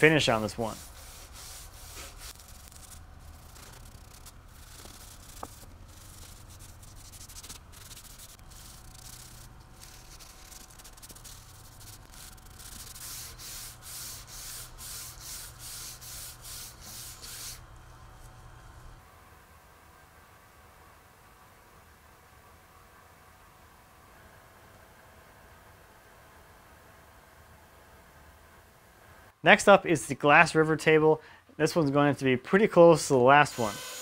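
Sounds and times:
low steady hum: 0.0s - 23.0s
rag rubbing on wood: 0.3s - 17.6s.

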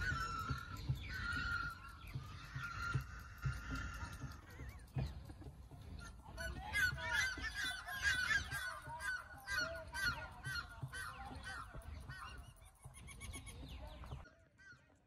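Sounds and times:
ibises squawking: 0.0s - 15.0s.

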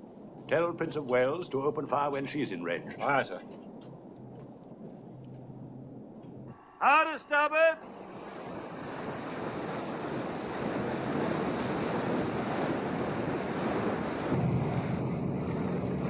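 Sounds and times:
steady low hum: 0.0s - 16.0s
wind: 0.0s - 16.0s
ship bow through waves: 6.5s - 16.0s.

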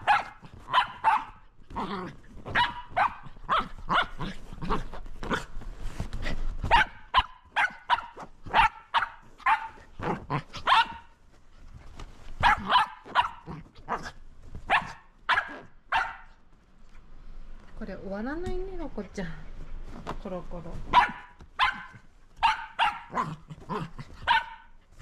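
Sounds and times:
dog barking quickly: 0.0s - 1.4s, 2.5s - 4.1s, 6.7s - 9.8s, 10.6s - 11.1s, 12.4s - 14.1s, 14.7s - 16.3s, 20.9s - 23.4s, 24.2s - 24.7s.

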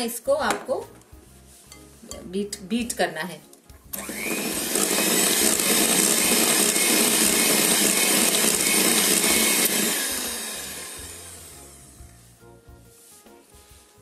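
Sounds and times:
electric hand mixer whirring: 3.9s - 11.9s.

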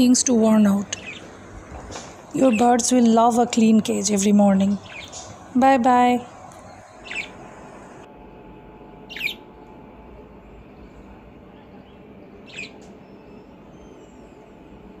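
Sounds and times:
low background noise: 0.0s - 15.0s
budgerigar chirps: 7.0s - 7.4s, 12.4s - 12.8s.

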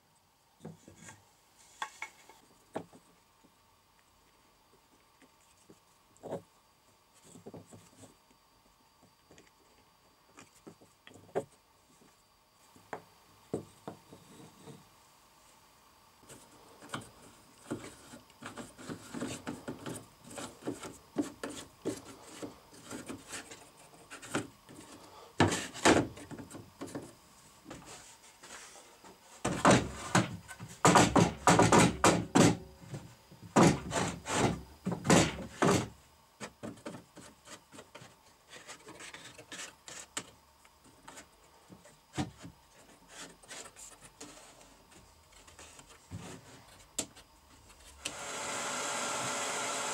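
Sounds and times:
wood knocking on workbench: 29.4s - 32.6s.

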